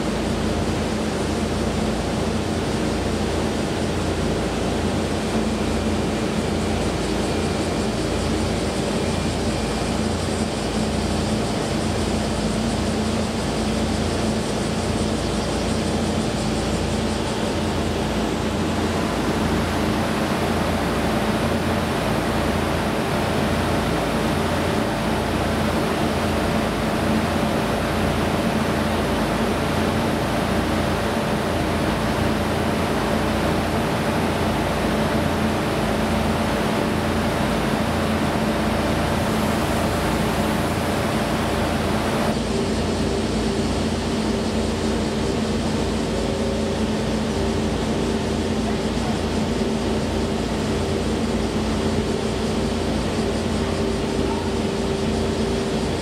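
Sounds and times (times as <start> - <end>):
steady droning tones: 0.0 - 56.0
mechanical hum and rushing: 16.3 - 43.0.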